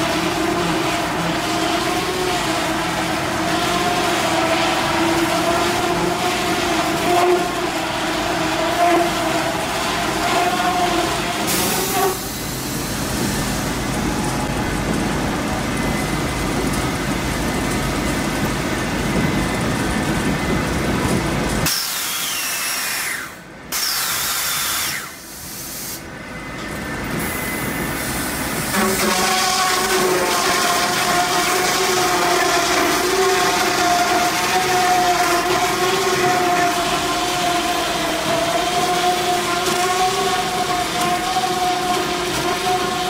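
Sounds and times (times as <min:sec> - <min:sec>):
falling whine: 0:00.0 - 0:43.0
firewood processor machine drone: 0:00.0 - 0:43.0
saw cutting into log: 0:21.7 - 0:25.2.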